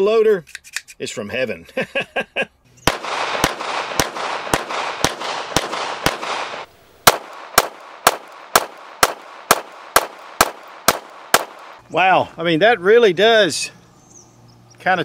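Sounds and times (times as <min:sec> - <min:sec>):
pistol shots: 0:02.8 - 0:11.8.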